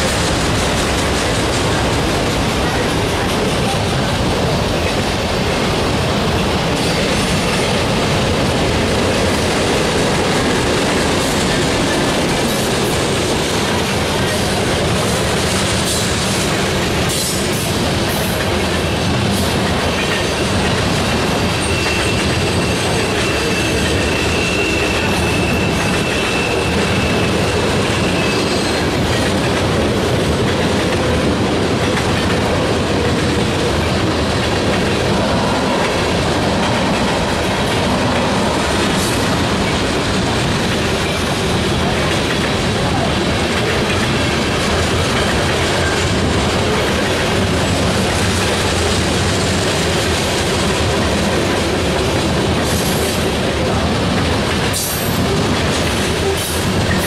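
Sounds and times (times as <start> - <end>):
freight cars rolling rumble: 0.0 - 57.0
high-pitched wheel squeal: 21.6 - 28.8.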